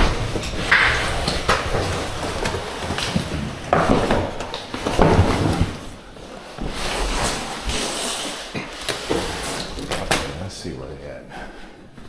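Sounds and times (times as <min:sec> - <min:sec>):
box bumping: 0:00.0 - 0:07.5
cardboard box scraping: 0:04.8 - 0:10.0.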